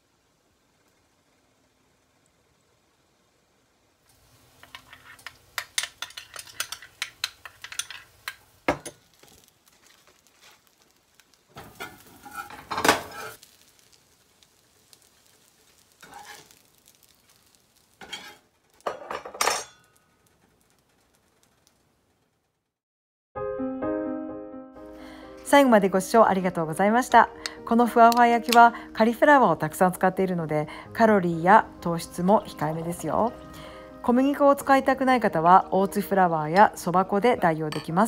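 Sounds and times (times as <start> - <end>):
light sizzle: 0.0 - 22.8, 24.8 - 38.0
spatula scraping skillet: 4.5 - 21.2
spoon clinking against glass bowl: 37.7 - 38.0.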